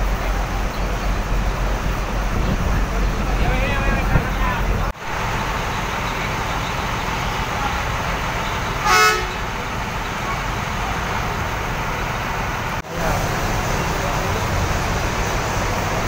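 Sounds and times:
bus engines rumbling: 0.0s - 16.0s
bus terminal noise: 0.0s - 16.0s
vehicle horn toot: 8.8s - 9.5s.

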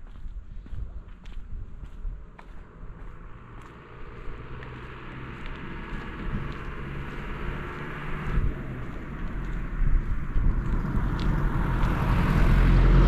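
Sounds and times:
car approaching: 0.1s - 13.0s.

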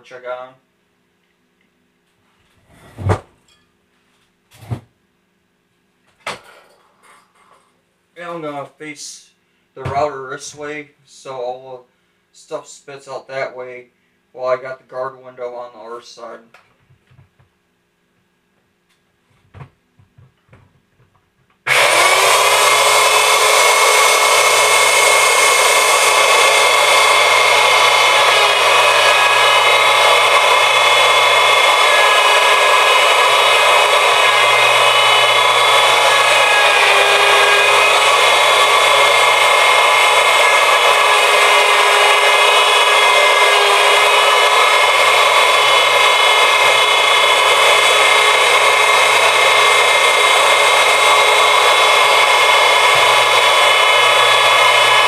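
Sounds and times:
wood router high whine: 21.6s - 55.0s.

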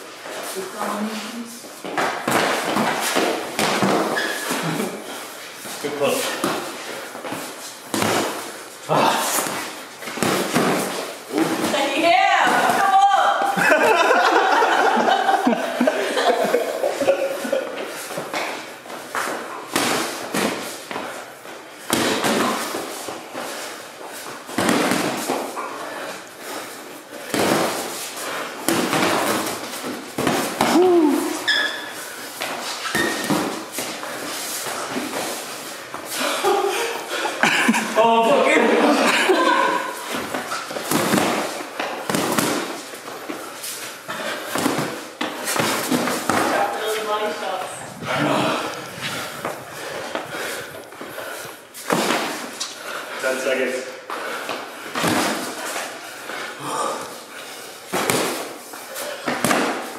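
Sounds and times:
boxing gloves smacking: 1.8s - 4.9s, 6.3s - 8.5s, 9.3s - 13.6s, 18.1s - 21.1s, 21.8s - 23.5s, 24.2s - 25.6s, 27.2s - 31.4s, 32.4s - 36.1s, 40.0s - 43.4s, 44.1s - 46.8s, 51.8s - 52.8s, 54.4s - 56.0s, 57.9s - 59.9s.

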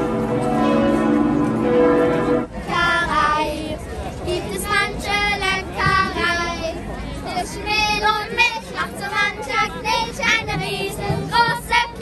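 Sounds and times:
church bells ringing: 0.0s - 2.5s.

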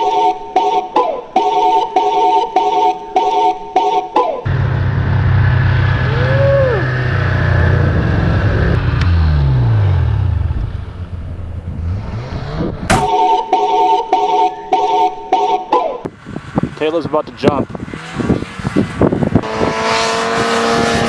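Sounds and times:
snowmobile engine: 4.4s - 13.1s, 16.1s - 21.0s
wind on microphone: 16.1s - 21.0s.

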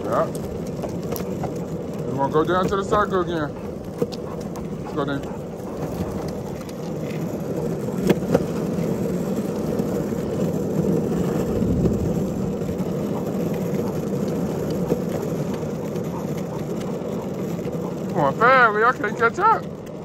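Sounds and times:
wind rumble on microphone: 11.4s - 12.8s.

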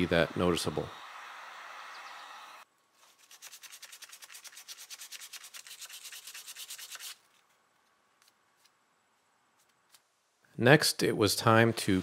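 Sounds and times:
sandpaper sanding wood: 3.0s - 7.2s.

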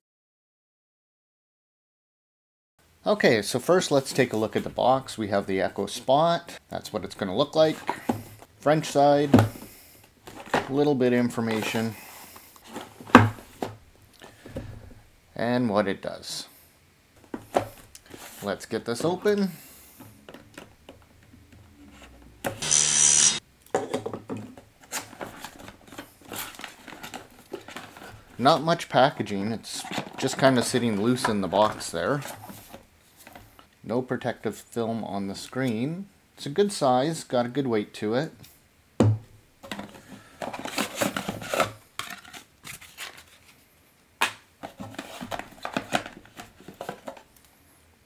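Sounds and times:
cardboard scraping and rustling: 7.6s - 10.8s, 11.4s - 14.5s, 24.8s - 28.6s, 39.7s - 43.6s, 44.6s - 47.3s
object thumping on wooden table: 39.0s - 39.4s.

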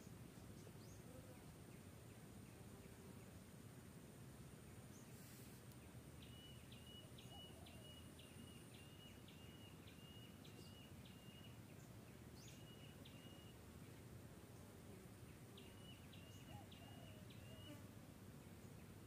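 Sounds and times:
faint outdoor ambience: 0.0s - 19.0s
distant bird calling: 6.2s - 11.6s, 15.6s - 17.8s.

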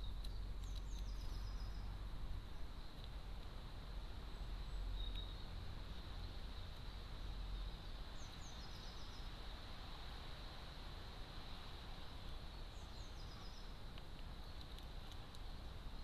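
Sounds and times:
light ticks: 0.0s - 1.4s, 2.9s - 3.6s, 13.9s - 15.6s
songbird phrase: 0.0s - 3.0s, 7.5s - 9.4s, 12.2s - 13.8s
steady hiss: 0.0s - 16.0s.

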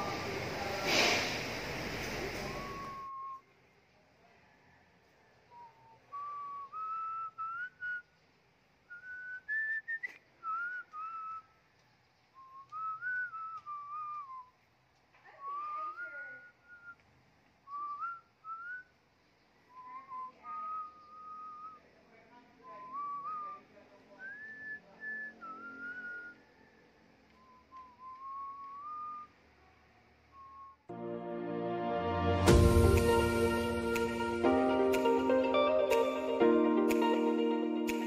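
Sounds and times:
person whistling a tune: 2.4s - 3.4s, 5.5s - 8.0s, 8.9s - 11.5s, 12.4s - 14.6s, 27.4s - 29.3s.

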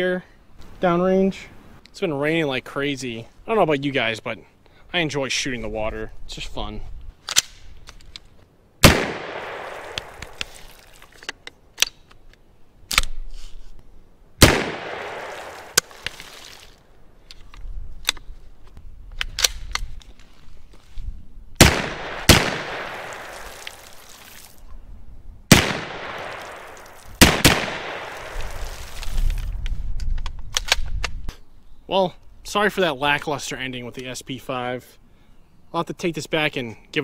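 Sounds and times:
rifle gunshots: 8.8s - 10.4s, 14.4s - 15.8s, 21.6s - 23.6s, 25.5s - 28.6s.

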